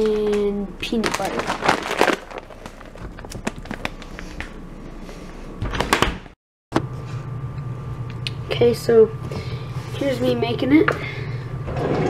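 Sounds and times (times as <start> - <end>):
steady low hum: 6.8 - 11.8.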